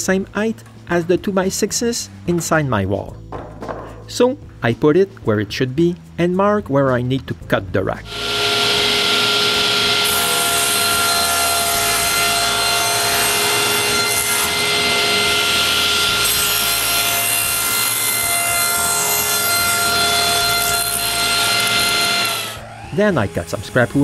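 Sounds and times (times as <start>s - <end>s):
saw cutting wood: 8.1s - 24.0s
table saw blade whine: 8.1s - 24.0s.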